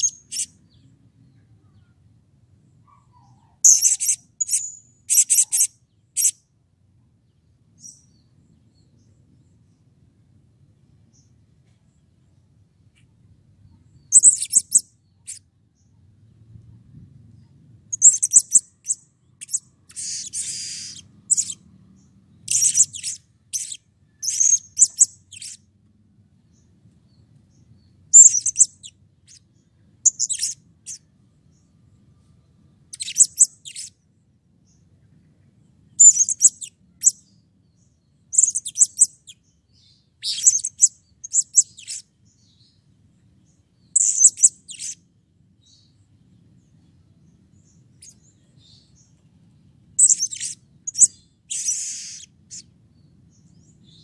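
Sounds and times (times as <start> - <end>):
parrot high-pitched chirps: 0.0 - 0.6, 2.9 - 6.4, 14.1 - 15.4, 17.9 - 21.6, 22.4 - 25.6, 28.1 - 29.4, 30.0 - 31.0, 32.9 - 34.0, 36.0 - 37.2, 38.3 - 39.4, 40.2 - 42.1, 44.0 - 45.0, 50.0 - 52.7.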